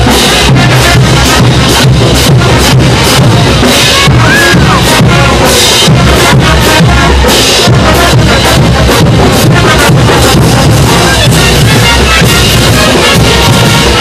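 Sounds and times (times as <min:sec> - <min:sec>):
loud distorted band music: 0:00.0 - 0:14.0
pounding bass drum: 0:00.0 - 0:14.0.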